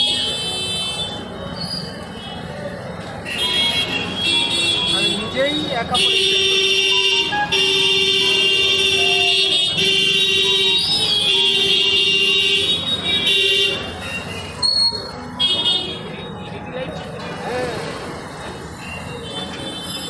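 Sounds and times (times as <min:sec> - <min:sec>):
vehicle horn blasts: 0:06.0 - 0:14.8.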